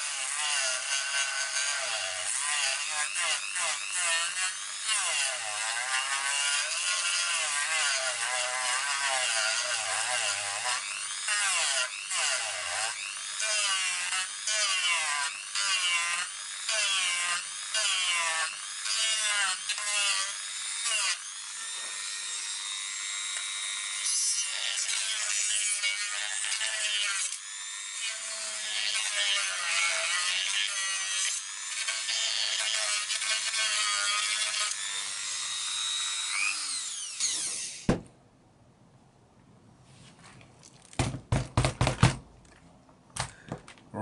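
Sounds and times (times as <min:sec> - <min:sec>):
rotary tool grinding plastic: 0:23.2 - 0:37.9.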